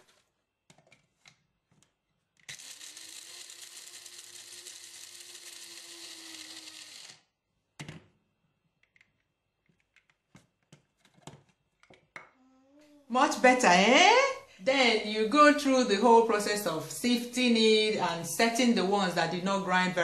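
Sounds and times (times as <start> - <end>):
electric coffee grinder: 2.5 - 7.3.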